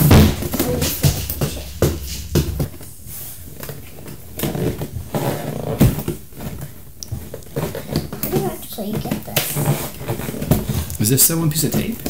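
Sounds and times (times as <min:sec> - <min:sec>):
sharp knocks: 0:00.0 - 0:03.3
cardboard and plastic rustling: 0:00.0 - 0:11.0.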